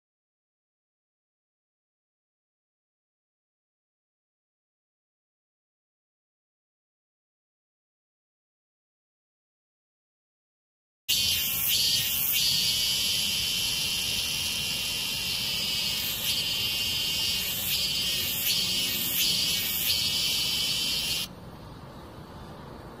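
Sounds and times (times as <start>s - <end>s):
cicada buzzing: 11.1s - 21.3s.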